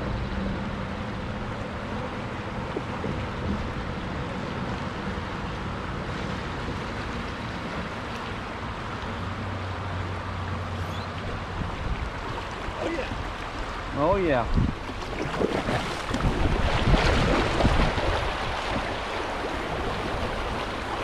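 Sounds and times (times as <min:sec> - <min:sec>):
river rushing over rocks: 0:04.5 - 0:21.0
wind on microphone: 0:10.7 - 0:13.3, 0:14.3 - 0:21.0.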